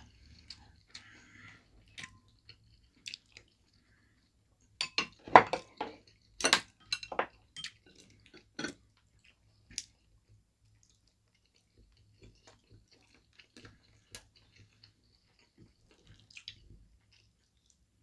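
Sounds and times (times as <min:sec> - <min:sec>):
utensils clinking on ceramic bowls: 0:04.8 - 0:05.8, 0:06.4 - 0:08.0.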